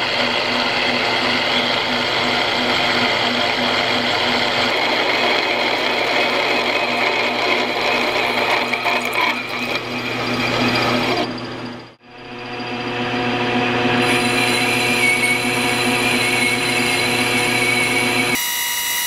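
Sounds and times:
lathe drill cutting metal: 0:00.0 - 0:19.0.

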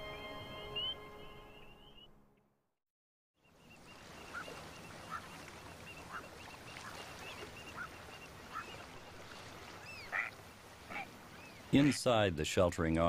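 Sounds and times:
short animal calls: 0:09.9 - 0:11.2.

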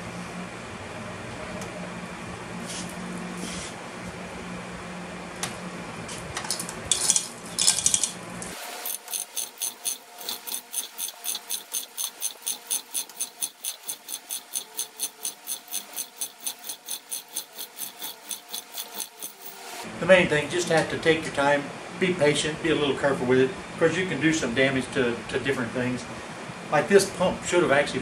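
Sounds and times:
steady hum: 0:00.0 - 0:28.0
chain hoist ratchet clicking: 0:07.6 - 0:19.8.

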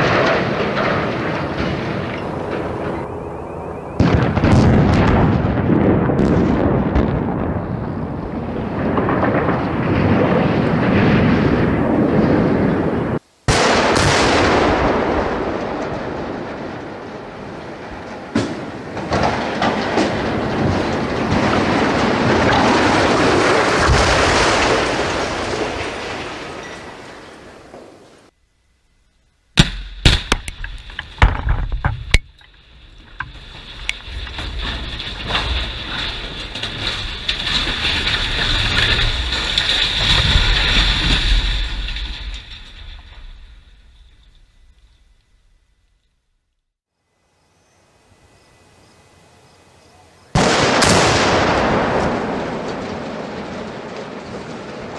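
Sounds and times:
loud cracks: 0:00.0 - 0:03.1, 0:13.5 - 0:27.9, 0:29.6 - 0:44.8, 0:50.4 - 0:54.9
tower toppling noise: 0:00.0 - 0:13.2, 0:13.8 - 0:28.3, 0:30.0 - 0:45.8, 0:50.4 - 0:54.9
explosive blast: 0:03.8 - 0:26.7, 0:50.4 - 0:54.9
chimney crashing down: 0:15.8 - 0:27.1, 0:29.6 - 0:44.5
second explosive crack: 0:29.6 - 0:32.2, 0:50.4 - 0:54.6.

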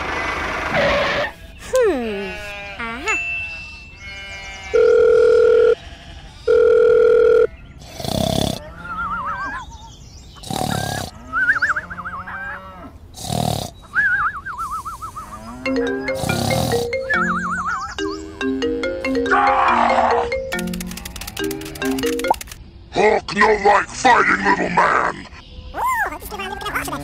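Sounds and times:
long electronic beeps: 0:15.7 - 0:20.6.

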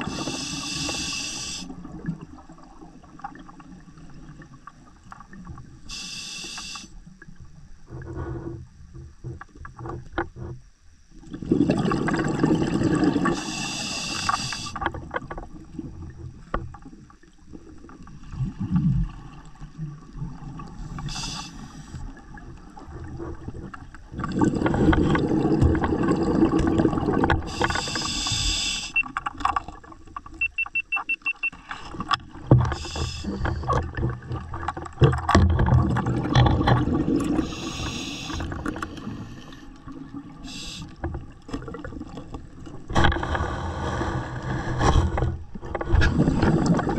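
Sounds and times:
regulator hiss: 0:00.0 - 0:01.7, 0:05.9 - 0:07.0, 0:13.3 - 0:14.8, 0:20.8 - 0:22.0, 0:27.5 - 0:29.0, 0:32.7 - 0:33.5, 0:37.4 - 0:39.6, 0:40.4 - 0:41.0
rumbling bubble noise: 0:11.2 - 0:13.4, 0:22.2 - 0:27.6, 0:32.3 - 0:37.6, 0:41.6 - 0:46.9.

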